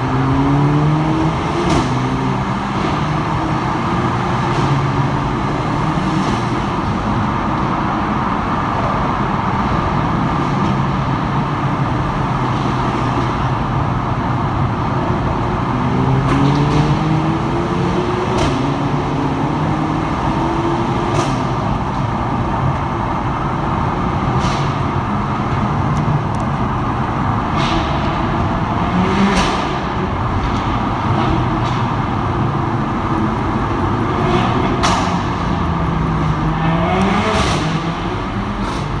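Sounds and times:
car engine and road noise: 0.0s - 39.0s.

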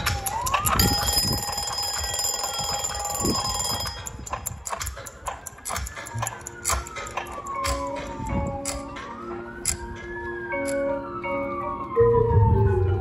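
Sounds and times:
siren wailing up and down: 0.0s - 13.0s
high ringing tone: 0.8s - 5.2s.

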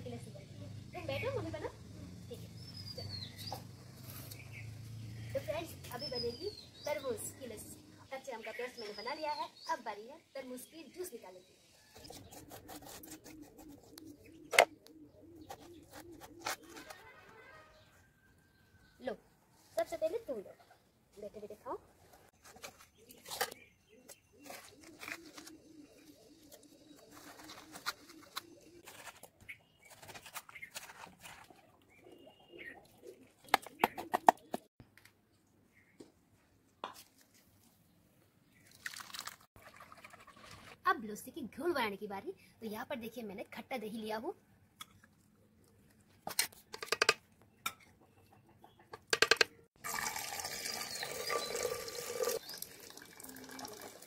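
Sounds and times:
dove cooing: 13.0s - 17.0s, 24.0s - 29.2s, 31.9s - 34.7s
liquid pouring into pot: 49.8s - 54.0s.

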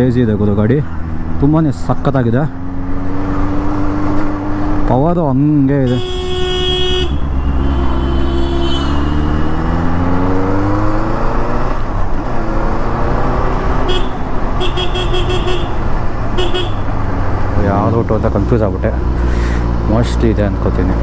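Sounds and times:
motorcycle engine revving: 0.8s - 4.9s, 5.9s - 21.0s
high-pitched horn beeps: 5.9s - 9.2s, 13.9s - 15.8s.

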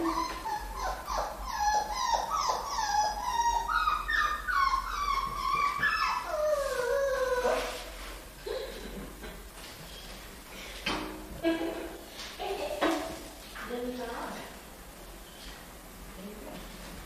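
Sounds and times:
puppy crying and yelping: 0.0s - 7.9s.

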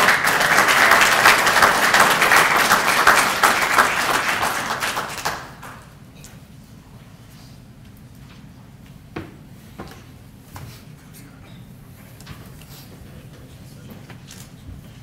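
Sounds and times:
audience applauding: 0.0s - 6.0s.

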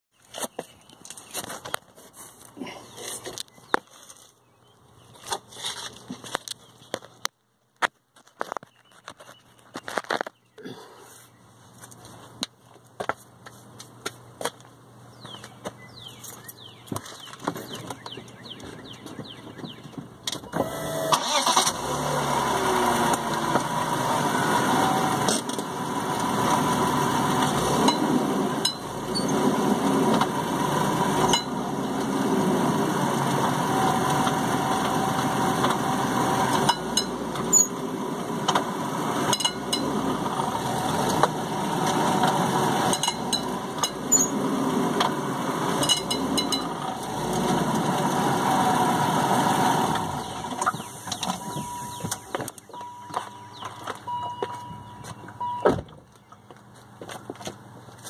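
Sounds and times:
car engine running: 20.6s - 55.6s.

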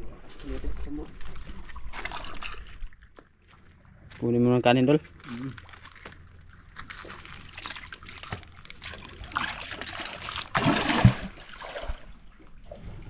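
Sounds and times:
water splashing and trickling: 0.0s - 13.0s.

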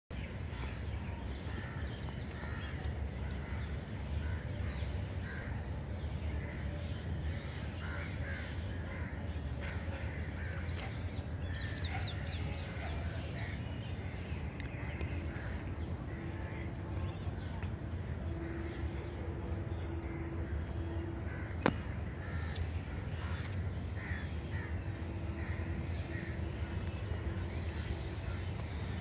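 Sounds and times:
low steady rumble: 0.2s - 29.0s
crows cawing: 21.3s - 26.4s.

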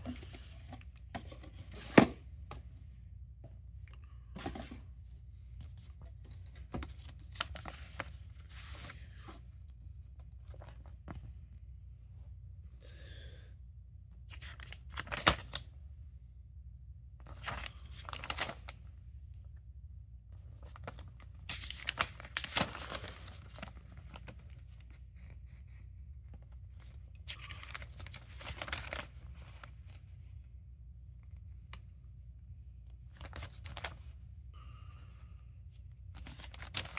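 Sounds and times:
paper rustling and crinkling: 4.4s - 11.3s, 17.2s - 18.8s, 20.4s - 30.5s, 33.1s - 34.2s, 36.1s - 36.9s.

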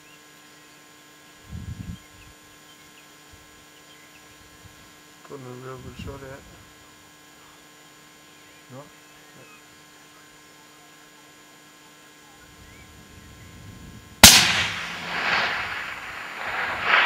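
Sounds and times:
rifle shot with echo: 14.2s - 17.0s.

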